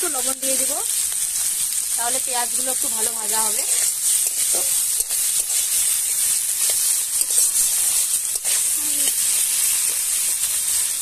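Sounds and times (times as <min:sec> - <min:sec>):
vegetables sizzling in oil: 0:00.0 - 0:11.0
spatula scraping a wok: 0:02.7 - 0:11.0.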